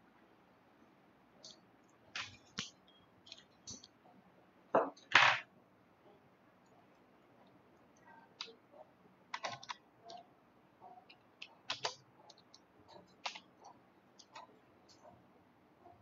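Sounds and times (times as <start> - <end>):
computer keyboard typing: 9.3 - 10.2, 11.0 - 15.1.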